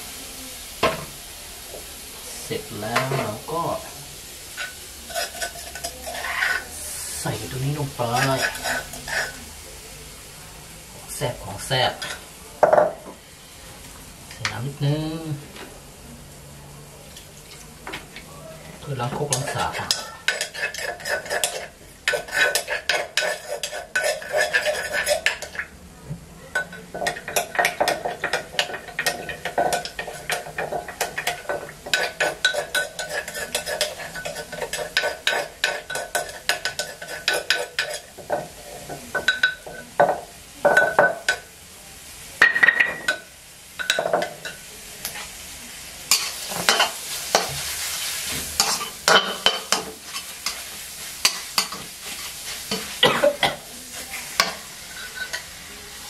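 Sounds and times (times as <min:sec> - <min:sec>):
oil sizzling: 0:00.0 - 0:56.0
metal spatula scraping a wok: 0:04.5 - 0:09.5, 0:19.0 - 0:25.7, 0:26.6 - 0:39.9, 0:46.1 - 0:55.6.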